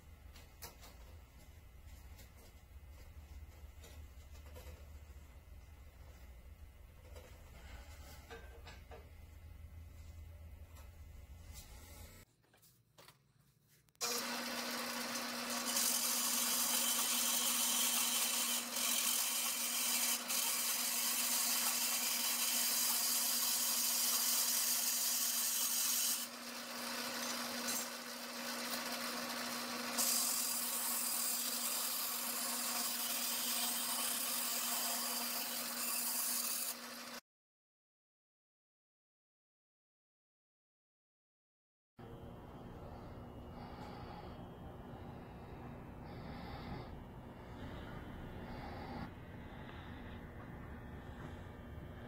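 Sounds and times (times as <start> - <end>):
band saw cutting metal: 14.0 - 37.2.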